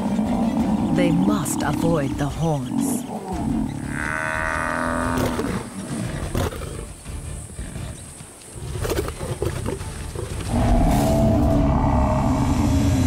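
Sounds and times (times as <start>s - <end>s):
drawn-out pitched animal call: 0.0s - 8.1s
background music: 0.0s - 13.0s
lions growling and snarling: 2.6s - 12.4s.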